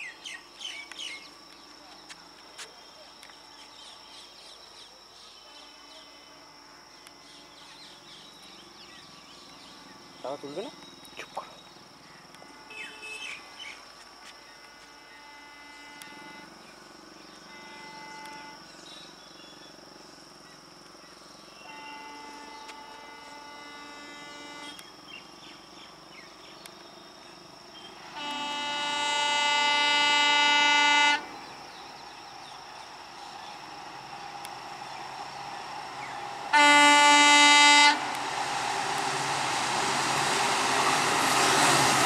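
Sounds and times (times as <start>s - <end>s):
high insect buzz: 11.2s - 38.2s
train horn blasts: 12.3s - 13.8s, 14.4s - 16.7s, 17.3s - 18.7s, 21.6s - 24.8s, 28.0s - 31.8s, 36.0s - 38.2s.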